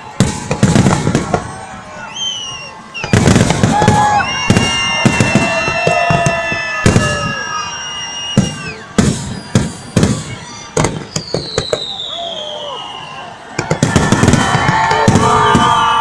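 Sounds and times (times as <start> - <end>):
fireworks bangs: 0.0 - 16.0
fireworks whistling: 0.0 - 16.0.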